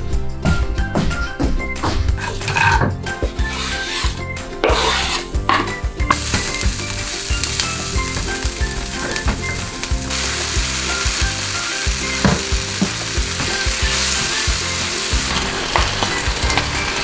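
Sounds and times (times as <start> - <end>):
background music: 0.0 - 17.0
spoon scraping a pan: 2.2 - 6.6
onions sizzling in a frying pan: 6.1 - 17.0.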